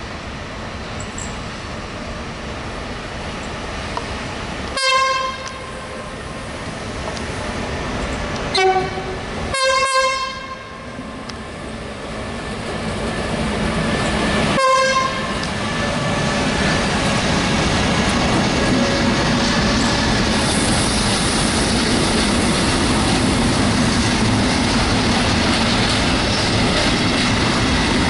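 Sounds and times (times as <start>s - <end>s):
freight train rumbling: 0.0s - 28.0s
locomotive horn toots: 4.7s - 5.8s, 8.5s - 11.0s, 14.5s - 15.4s.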